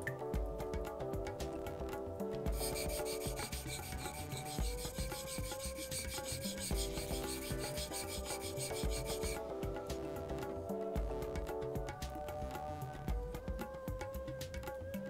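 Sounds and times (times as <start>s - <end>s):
background music: 0.0s - 15.0s
knife rubbing on whetstone: 2.5s - 9.5s.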